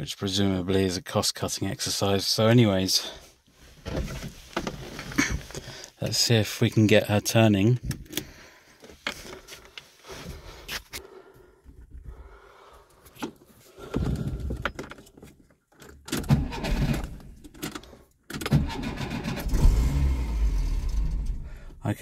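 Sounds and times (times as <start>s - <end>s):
car engine cranking: 15.8s - 21.8s.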